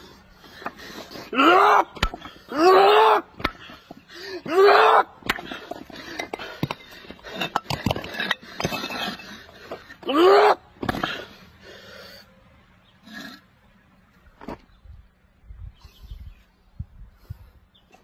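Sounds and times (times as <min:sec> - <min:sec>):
man's strained cries: 0:01.0 - 0:06.3, 0:09.6 - 0:11.4
bricks breaking under hand strikes: 0:01.9 - 0:02.4, 0:03.3 - 0:03.8, 0:04.5 - 0:09.2, 0:10.8 - 0:11.2.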